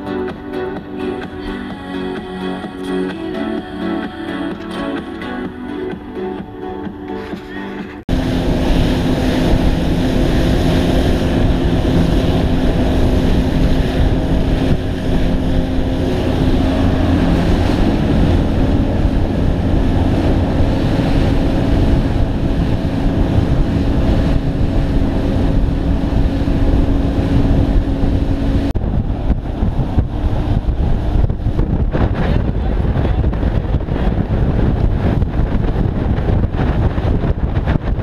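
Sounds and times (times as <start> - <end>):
outboard motors running: 0.0 - 38.0
water rushing past hull: 8.0 - 38.0
wind buffeting microphone: 8.1 - 38.0.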